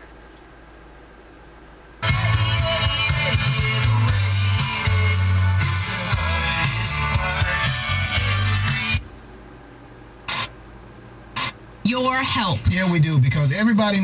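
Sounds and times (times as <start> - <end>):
music from car radio: 2.0 - 9.2, 10.3 - 10.5, 11.4 - 14.0.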